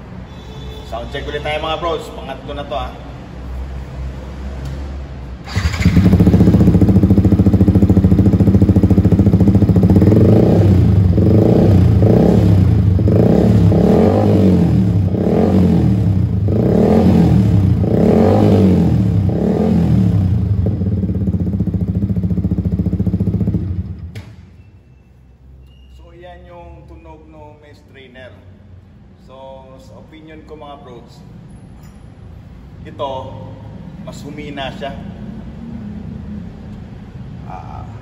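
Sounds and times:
motorcycle engine revving: 0:05.4 - 0:24.2.

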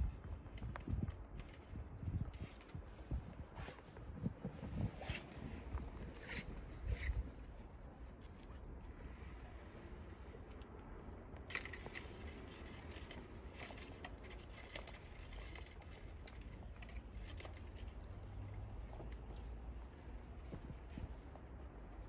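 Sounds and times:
low steady rumble: 0:00.0 - 0:22.0
rabbits rustling on wire floor: 0:11.5 - 0:18.2.

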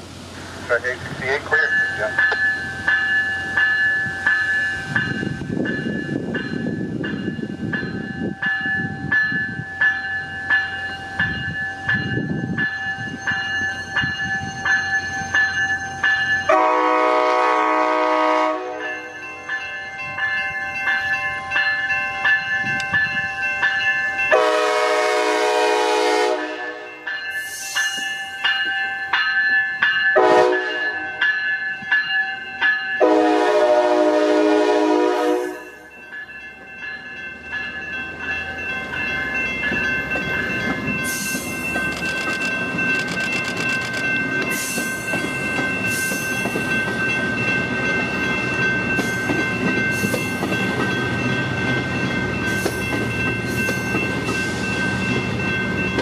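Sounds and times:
bell ringing steadily: 0:00.8 - 0:16.9, 0:18.7 - 0:25.1, 0:26.5 - 0:33.4, 0:35.4 - 0:56.0
train horn blasts: 0:16.5 - 0:19.1, 0:24.3 - 0:27.0, 0:30.2 - 0:31.2, 0:33.0 - 0:35.8
train wheels clacking over rail joints: 0:39.6 - 0:47.2.

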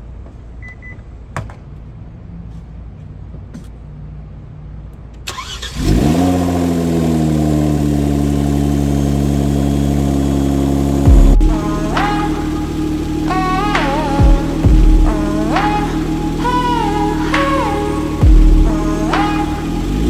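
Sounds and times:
car engine starting and idling: 0:04.2 - 0:20.0.

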